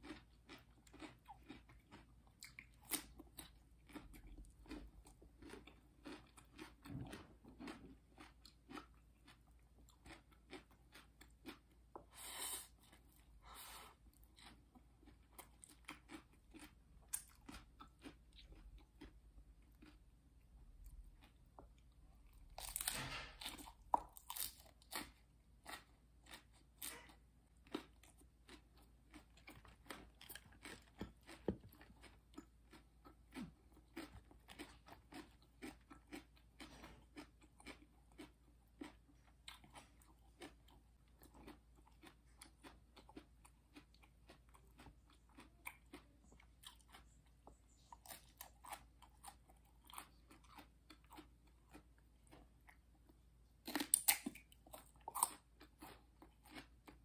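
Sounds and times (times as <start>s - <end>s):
crunchy lettuce bite: 0.0s - 20.0s, 22.4s - 40.6s, 53.6s - 57.0s
crisp chewing: 0.0s - 57.0s.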